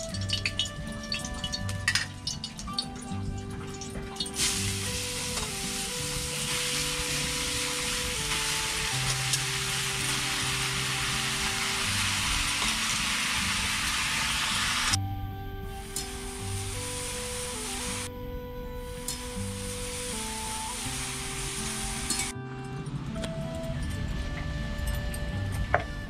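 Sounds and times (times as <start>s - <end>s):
mushrooms sizzling in hot oil: 4.3s - 15.0s, 15.8s - 18.1s, 18.9s - 22.3s.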